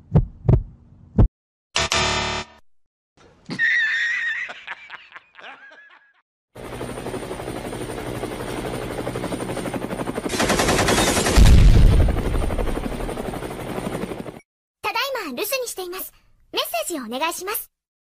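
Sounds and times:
helicopter rapid pulsing: 6.6s - 14.4s
explosion with deep boom: 11.3s - 12.3s.

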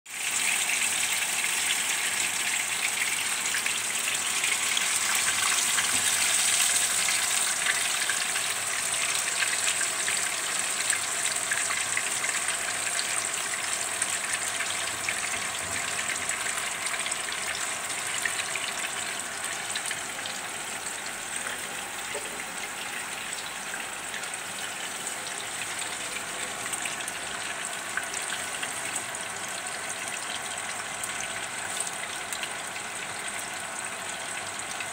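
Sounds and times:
fish sizzling in hot oil: 0.1s - 34.9s.

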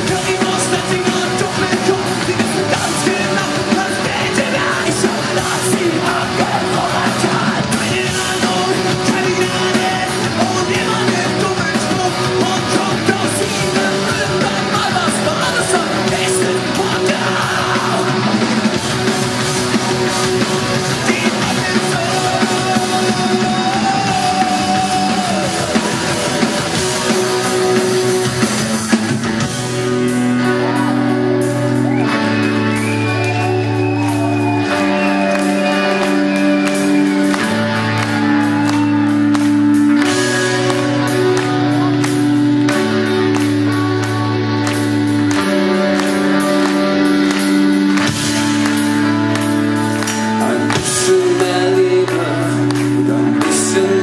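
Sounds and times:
punk rock band playing live: 0.0s - 54.0s
man shouting and singing: 21.0s - 26.4s.

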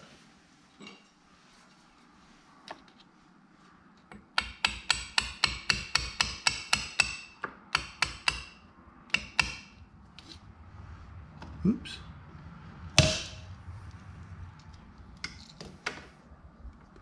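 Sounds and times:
hammer tapping metal rod: 4.1s - 9.8s, 13.0s - 13.4s.

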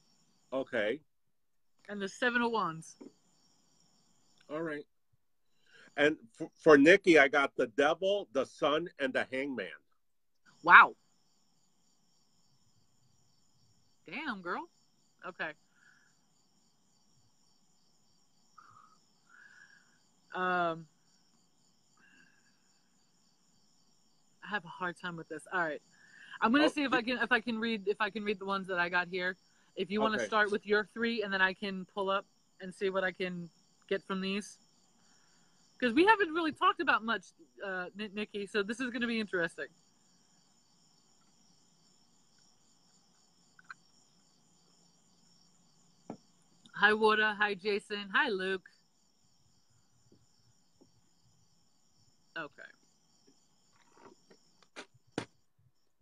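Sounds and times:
insect chirring: 0.0s - 1.0s, 1.6s - 56.0s
high-pitched pulsing chirr: 29.9s - 30.7s
man making short vocal sound: 30.0s - 30.4s.

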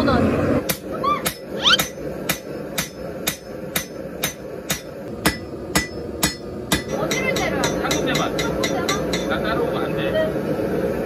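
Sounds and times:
hammer striking steel on anvil: 0.7s - 9.4s.

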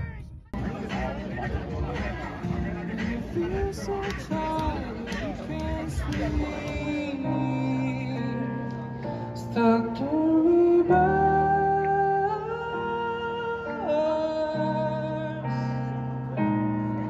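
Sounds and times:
person singing: 0.6s - 17.0s.

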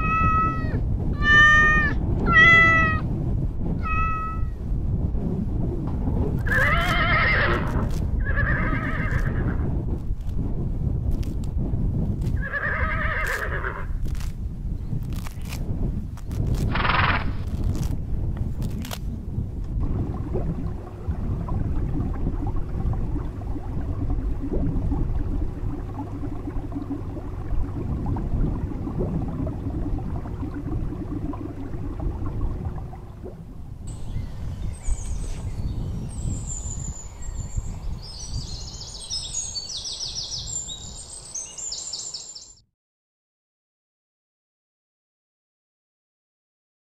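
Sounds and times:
low outdoor rumble: 15.8s - 35.0s
faint steady hum: 19.7s - 35.4s
small birds chirping: 33.9s - 42.6s.

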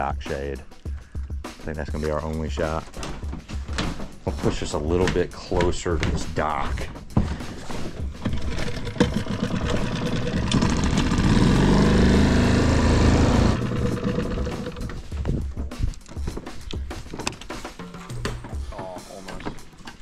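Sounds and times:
outboard motor running: 8.1s - 15.1s.

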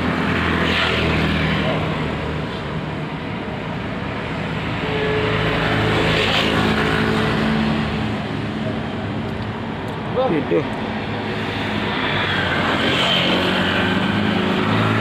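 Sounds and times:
road traffic engine hum: 0.0s - 15.0s
vehicle passing by: 4.2s - 9.0s, 10.2s - 15.0s.

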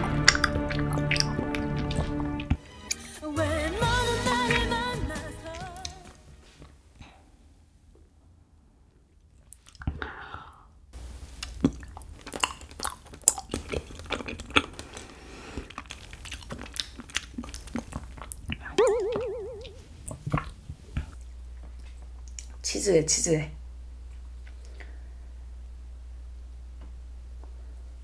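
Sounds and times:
close chewing of jelly: 0.0s - 3.0s, 9.4s - 10.0s, 11.3s - 18.7s
mouth clicks: 0.0s - 3.0s, 16.3s - 21.2s
brief wavering tone: 18.8s - 19.9s.

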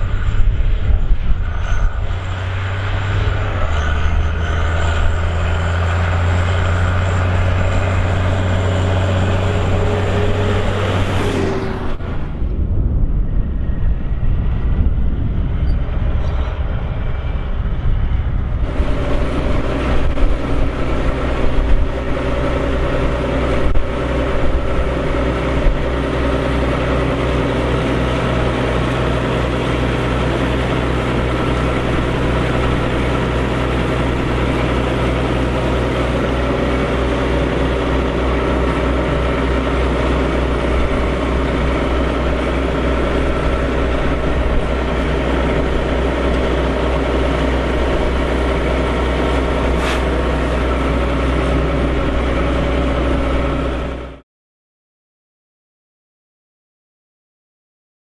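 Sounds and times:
diesel engine idling: 2.1s - 12.2s, 18.6s - 54.2s.

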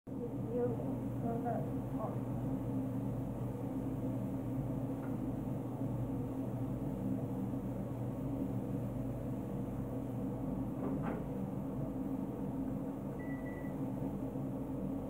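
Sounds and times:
low room hum: 0.1s - 15.0s
microwave beep: 13.1s - 13.9s.

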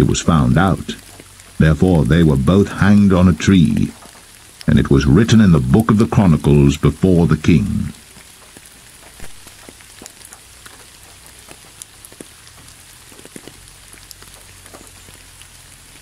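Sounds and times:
faint low rumble: 0.0s - 8.1s
drops ticking: 0.0s - 16.0s
steady rain falling: 0.0s - 16.0s.

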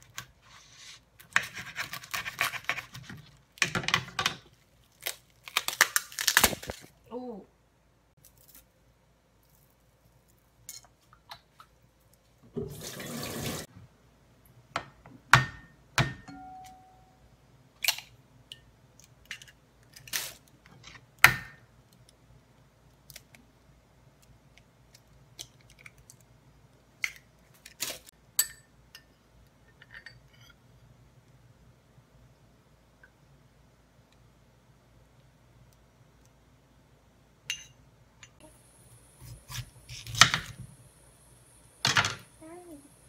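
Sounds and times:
bowls and spoon knocking: 15.4s - 17.0s.

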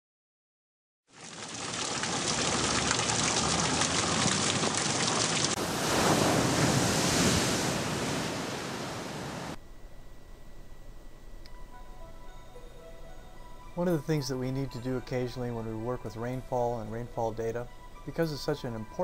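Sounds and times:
rushing water: 1.1s - 9.6s.

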